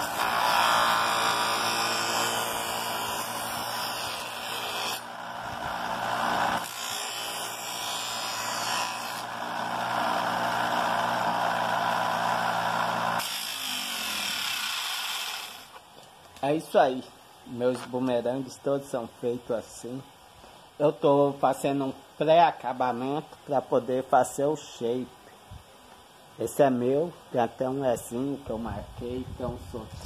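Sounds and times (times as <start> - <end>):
bench grinder motor humming: 0.0 - 15.7
grinding on abrasive disc: 0.0 - 15.8.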